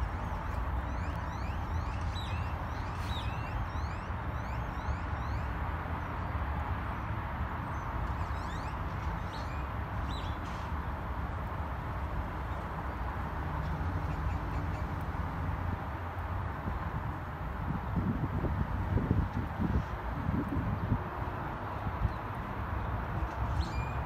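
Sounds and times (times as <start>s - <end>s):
birds chirping: 0.0s - 5.6s.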